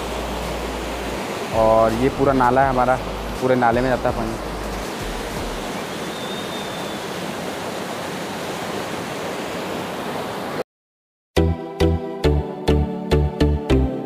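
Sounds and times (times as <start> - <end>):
water rushing down channel: 0.0 - 10.6.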